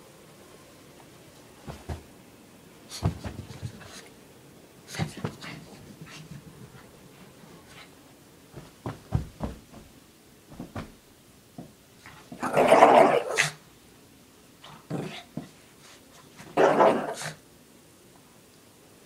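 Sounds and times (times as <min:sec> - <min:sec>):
thumps and rustles on carpet: 0:01.6 - 0:02.2, 0:02.9 - 0:04.0, 0:04.9 - 0:06.9, 0:08.5 - 0:11.8
dog play-growling: 0:12.0 - 0:13.6, 0:14.6 - 0:15.6, 0:16.3 - 0:17.4.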